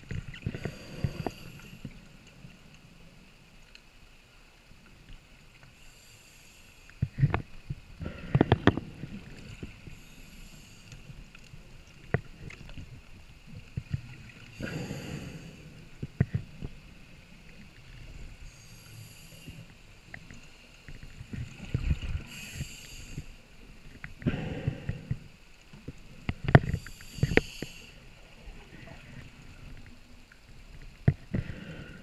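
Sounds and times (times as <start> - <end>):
regulator inhalation hiss: 0.6 - 2.0, 5.8 - 7.0, 9.8 - 11.1, 14.5 - 15.9, 18.4 - 19.9, 22.2 - 23.5, 26.6 - 28.2.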